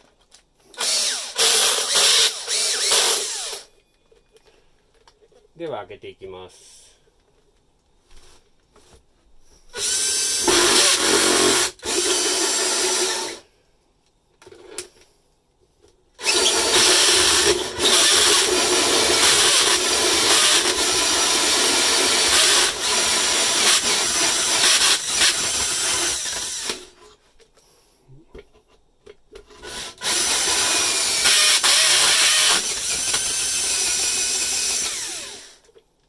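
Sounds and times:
drill hole saw cutting plasterboard: 0:00.8 - 0:03.7, 0:09.7 - 0:13.4, 0:16.2 - 0:27.0, 0:29.6 - 0:35.6.

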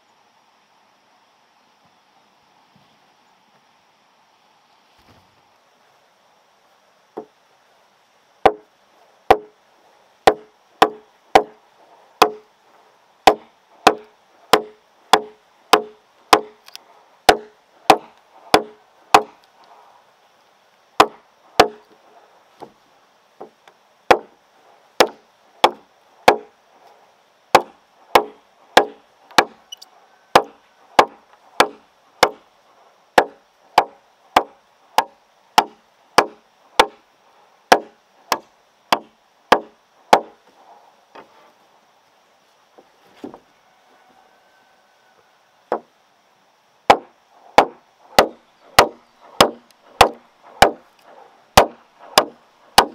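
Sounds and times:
blade chopping wood: 0:08.4 - 0:08.6, 0:09.3 - 0:09.5, 0:10.3 - 0:11.6, 0:12.2 - 0:12.4, 0:13.3 - 0:16.7, 0:17.3 - 0:19.4, 0:21.0 - 0:21.8, 0:23.4 - 0:24.3, 0:25.0 - 0:26.5, 0:27.5 - 0:29.6, 0:30.3 - 0:32.4, 0:33.2 - 0:37.0, 0:37.7 - 0:40.4, 0:46.9 - 0:52.9.

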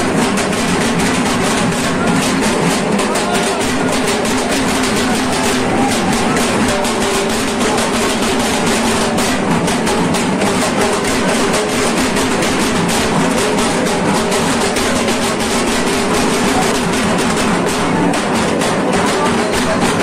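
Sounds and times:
drums beaten in fast rhythm: 0:00.0 - 0:20.0.

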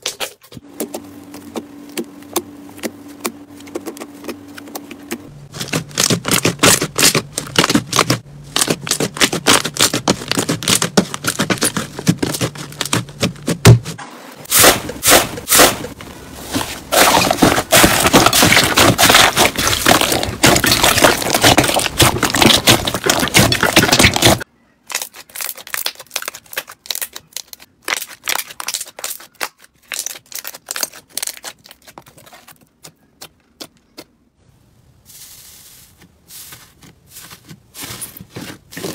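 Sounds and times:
slime crackling and popping: 0:16.9 - 0:31.9.

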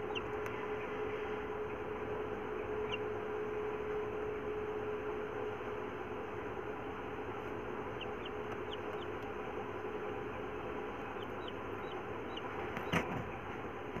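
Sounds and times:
chick peeping: 0:00.0 - 0:04.0, 0:07.3 - 0:14.0.

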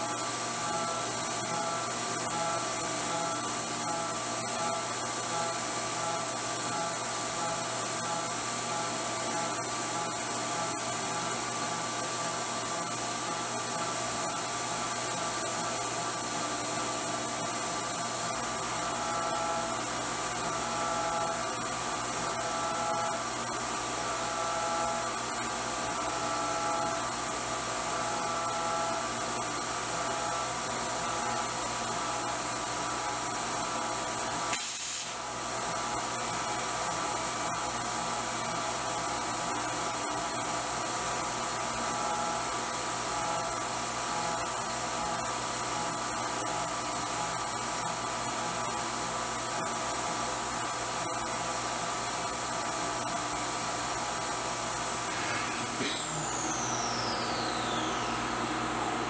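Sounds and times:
faint cutter tone: 0:00.0 - 0:27.2, 0:55.0 - 0:59.0
milling spindle high whine: 0:00.0 - 0:34.5, 0:35.2 - 0:59.0.

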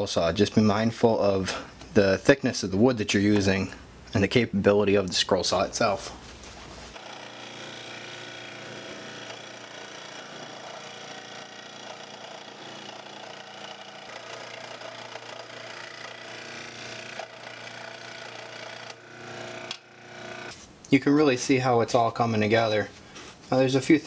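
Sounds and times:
scroll saw cutting wood: 0:06.9 - 0:20.6.

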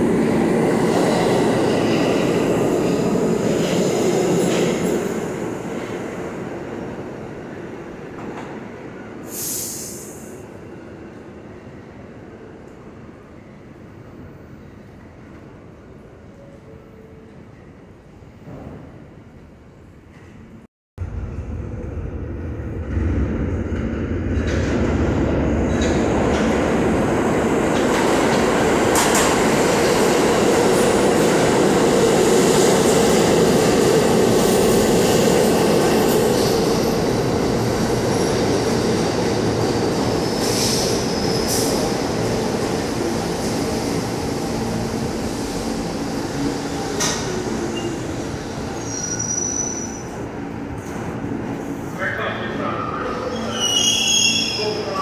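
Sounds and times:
subway train rumble on rails: 0:00.0 - 0:55.0
brake squeal: 0:48.8 - 0:50.1.

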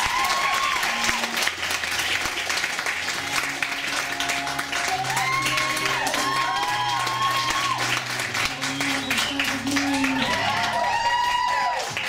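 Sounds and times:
audience applauding: 0:00.0 - 0:12.0
background music with singing: 0:03.1 - 0:12.0.

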